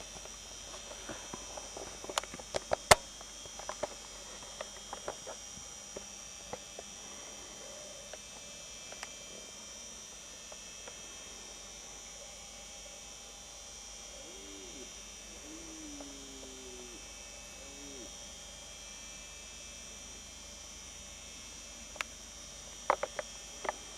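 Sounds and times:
steady high whine: 0:00.0 - 0:23.9
faint animal calls: 0:07.0 - 0:08.2, 0:14.0 - 0:18.2.

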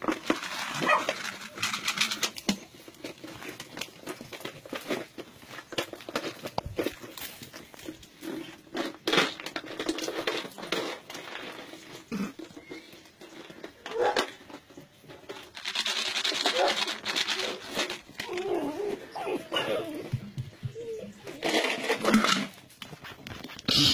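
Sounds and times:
scuffling and scratching: 0:00.0 - 0:23.9
puppies whimpering and yipping: 0:18.2 - 0:21.9.

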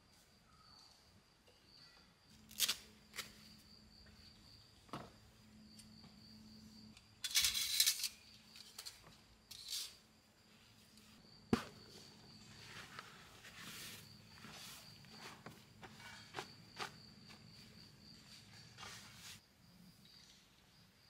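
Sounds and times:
knocks and scrapes: 0:11.5 - 0:19.4.

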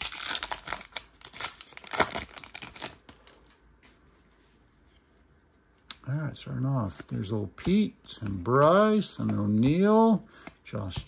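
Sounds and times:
wrapper tearing and crinkling: 0:00.0 - 0:03.0.

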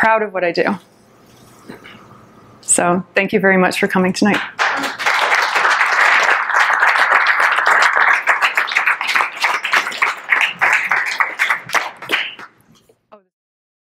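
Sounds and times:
audience applauding: 0:04.4 - 0:12.6.

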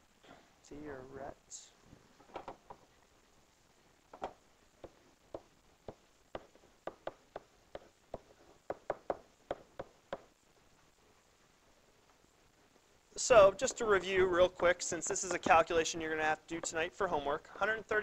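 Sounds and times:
pen tapping on whiteboard: 0:04.2 - 0:10.3.

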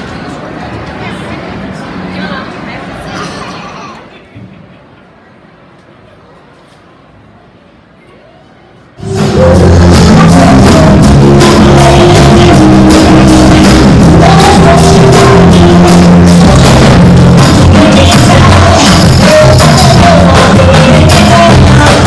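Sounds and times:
loud rock band playing: 0:09.0 - 0:22.0.

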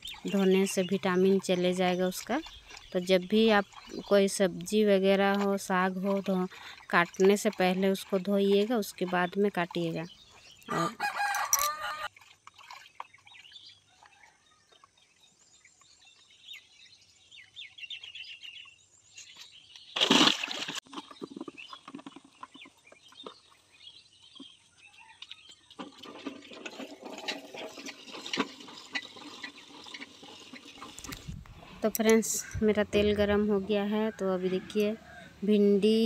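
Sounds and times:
water splashing in plastic bucket: 0:00.0 - 0:09.9, 0:19.9 - 0:23.5, 0:25.6 - 0:31.8
water running into bucket: 0:00.0 - 0:10.0, 0:25.7 - 0:31.9.

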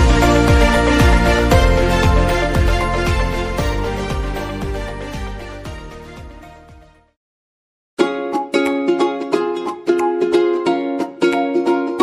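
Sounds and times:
background music with repeated notes: 0:00.0 - 0:07.2, 0:08.0 - 0:12.0.

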